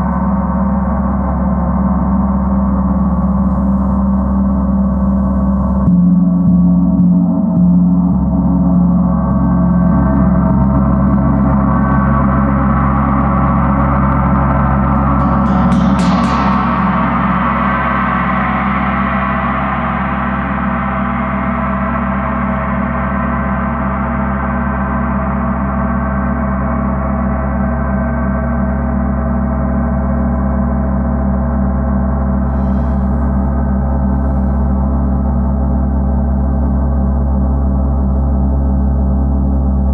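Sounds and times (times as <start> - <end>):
gong ringing: 9.2 - 23.7.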